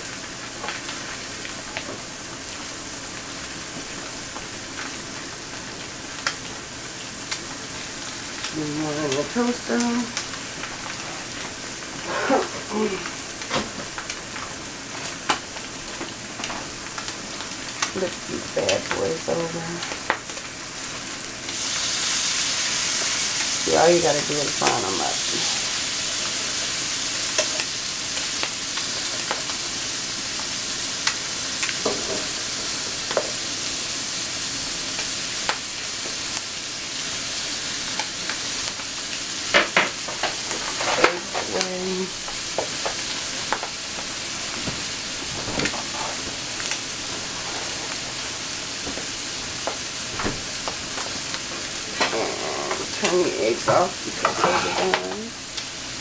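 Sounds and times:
food sizzling in frying pans: 0:00.0 - 0:56.0
fork and spatula scraping pans: 0:53.7 - 0:55.2.

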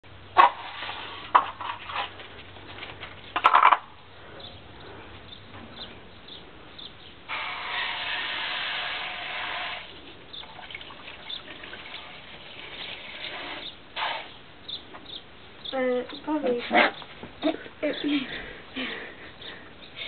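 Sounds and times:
water running: 0:10.4 - 0:13.8.

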